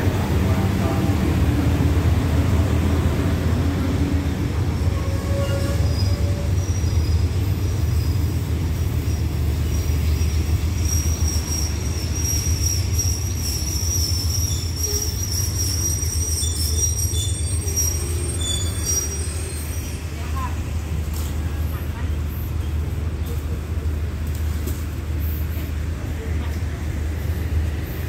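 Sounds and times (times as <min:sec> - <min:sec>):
train coaches rumbling: 0:00.0 - 0:28.0
train brakes squealing: 0:04.6 - 0:20.6.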